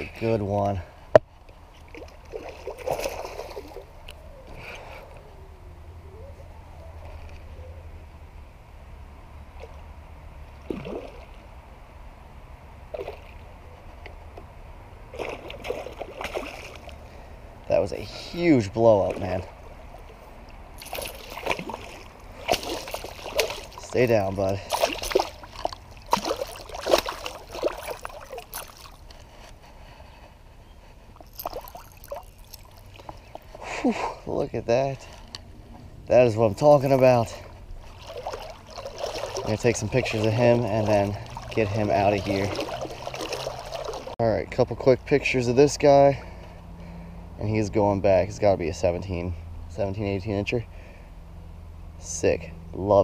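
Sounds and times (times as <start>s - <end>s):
water lapping and trickling: 0.0s - 7.8s, 9.3s - 11.8s, 12.8s - 44.2s, 45.0s - 47.4s
fish splashing at water surface: 15.1s - 17.0s, 20.8s - 24.0s, 24.6s - 29.1s, 31.2s - 33.4s, 37.8s - 44.2s.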